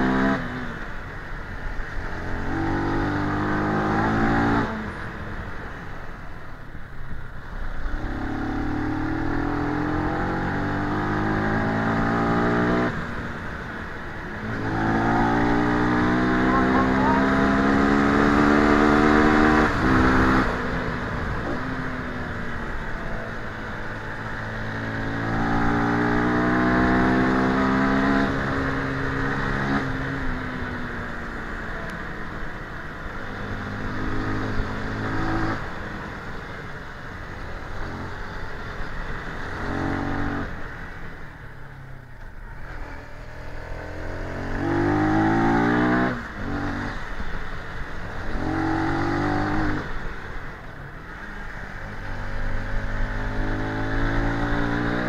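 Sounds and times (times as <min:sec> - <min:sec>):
motorcycle engine revving: 0:07.8 - 0:55.0.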